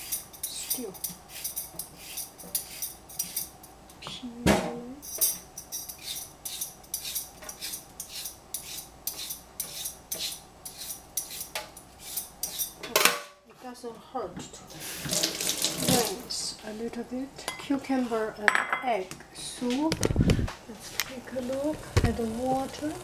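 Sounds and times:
peeler scraping a cucumber: 0.0 - 3.5, 5.7 - 12.8.

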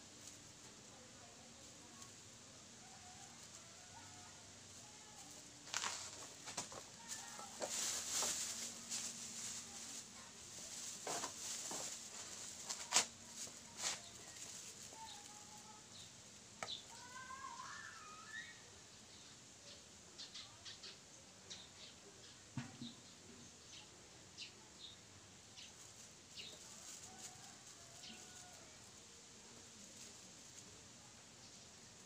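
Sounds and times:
plastic sheeting crinkling: 4.8 - 15.9, 25.8 - 28.7.

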